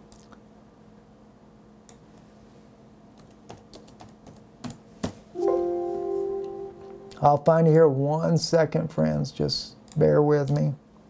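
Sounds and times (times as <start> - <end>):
faint steady hum: 0.0 - 11.0
keyboard typing: 3.2 - 4.8.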